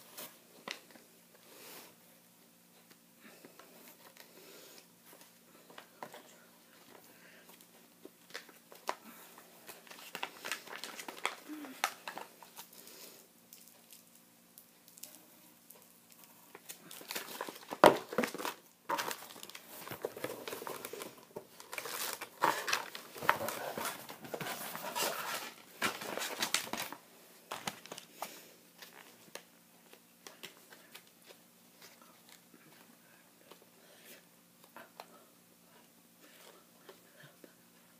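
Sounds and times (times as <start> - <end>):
packaging crinkling and rustling: 8.2 - 12.8, 14.8 - 32.4.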